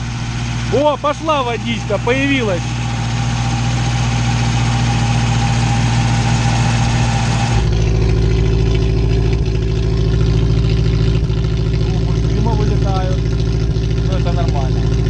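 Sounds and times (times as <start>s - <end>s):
car engine idling: 0.0s - 15.0s.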